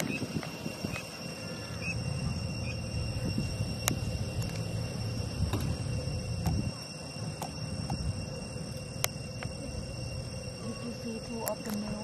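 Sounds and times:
high-pitched insect chorus: 0.0s - 12.0s
low rumble: 0.0s - 12.0s.

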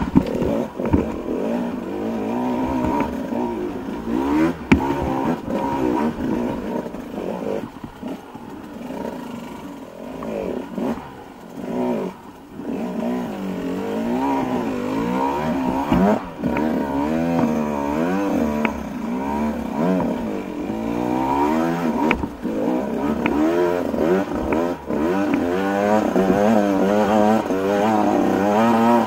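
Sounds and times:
sharp knocks: 0.0s - 1.3s, 4.4s - 6.1s, 22.0s - 22.5s
dirt bike engine revving: 0.0s - 29.0s.

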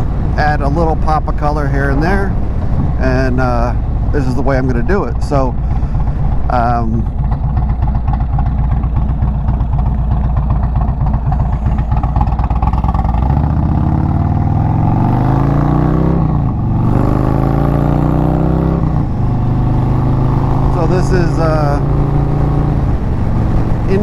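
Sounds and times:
wind buffeting microphone: 0.0s - 15.2s
motorcycle engine accelerating: 0.0s - 24.0s.

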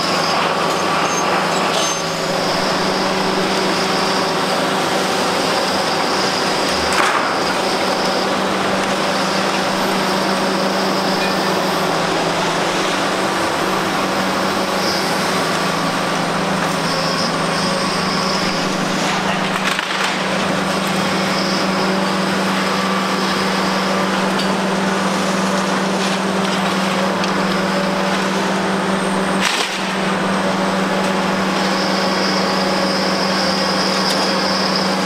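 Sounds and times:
concrete demolition grinding: 0.0s - 35.0s
excavator diesel engines: 0.0s - 35.0s
thin high squeal: 0.1s - 4.6s.

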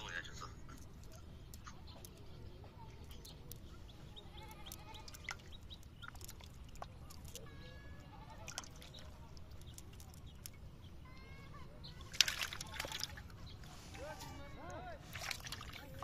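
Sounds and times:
fish splashing in water: 0.8s - 10.6s, 11.9s - 13.8s, 15.0s - 16.0s.

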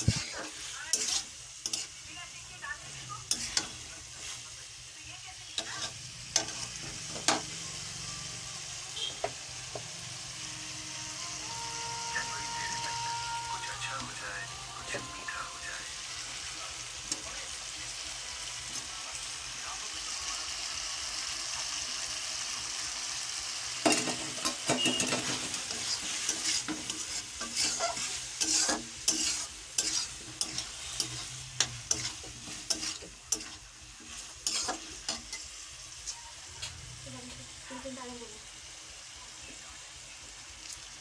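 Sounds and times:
metal spatula scraping pan: 0.0s - 2.0s, 2.9s - 4.4s, 5.6s - 7.5s, 23.8s - 35.5s
food sizzling in a wok: 0.0s - 41.0s.

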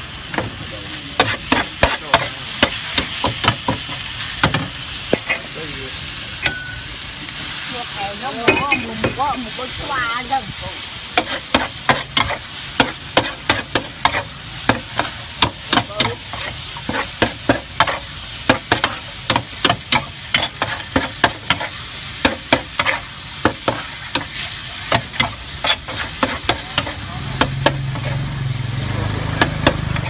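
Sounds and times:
noodles sizzling: 0.0s - 30.0s
metal spatula scraping pan: 22.3s - 23.0s, 23.6s - 28.2s.

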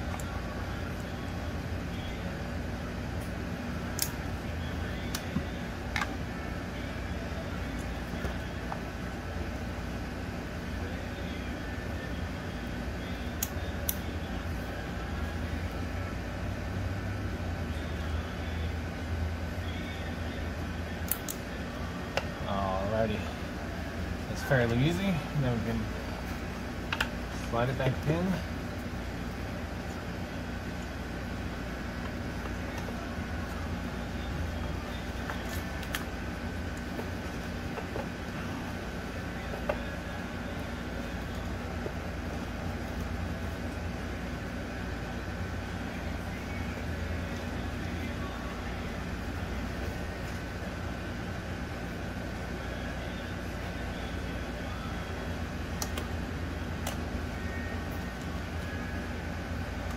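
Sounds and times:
low background hum: 0.0s - 59.9s
plastic clips snapping: 21.0s - 21.4s, 55.8s - 56.1s.

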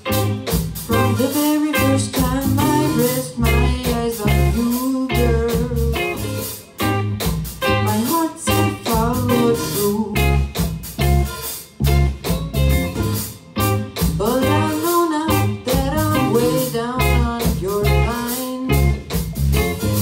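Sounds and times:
live rock band playing: 0.0s - 20.0s
lead singer singing: 0.8s - 6.5s, 7.6s - 10.6s, 14.1s - 19.0s.

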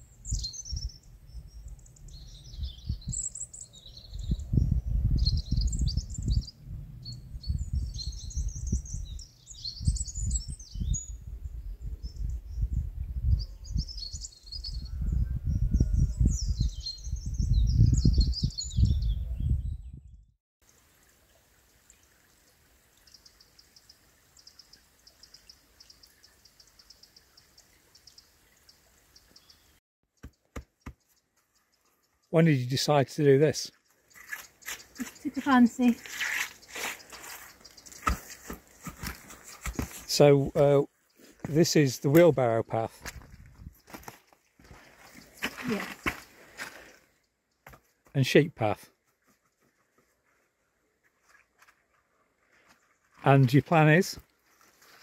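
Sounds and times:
small birds chirping: 0.0s - 20.8s, 23.0s - 51.4s
gusty wind on microphone: 2.1s - 3.2s, 4.0s - 20.3s, 43.1s - 43.8s.

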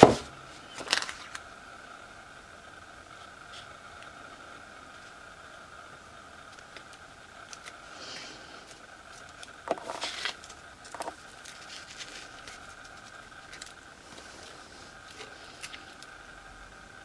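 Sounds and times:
ribbon and tape sheets rustling: 0.0s - 1.4s, 6.4s - 16.1s
faint steady high hum: 0.0s - 17.0s.

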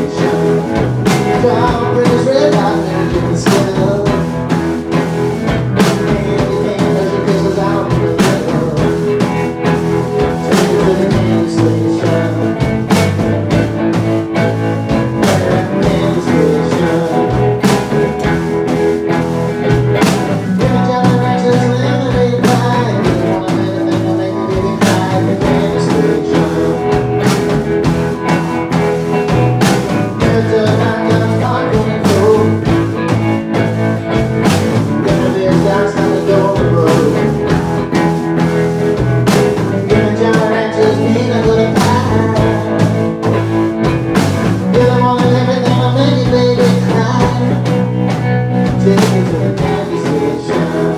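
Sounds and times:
drum kit with cymbals: 0.0s - 50.9s
electric bass: 0.0s - 50.9s
electric guitar: 0.0s - 50.9s.

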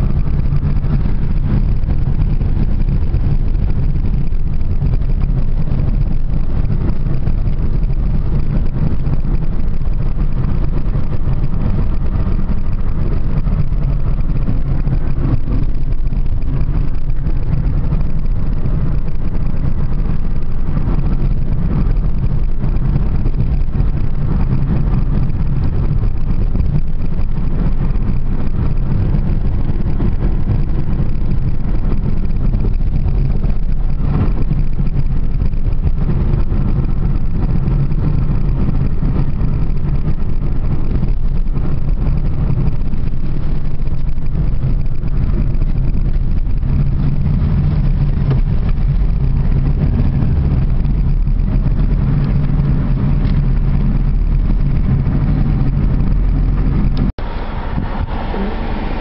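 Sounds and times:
car driving heard from inside: 0.0s - 59.0s.

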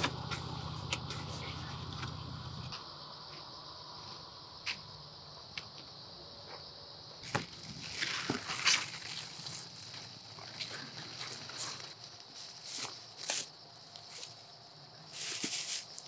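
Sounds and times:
insects chorus: 0.0s - 16.0s
leaves rustling and crackling: 7.2s - 14.4s, 15.0s - 16.0s.

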